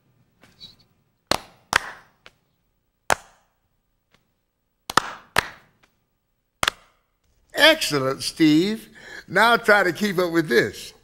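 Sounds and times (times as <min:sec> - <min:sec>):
hand claps: 0:01.3 - 0:02.4, 0:03.1 - 0:03.5, 0:04.9 - 0:06.0, 0:06.6 - 0:07.0.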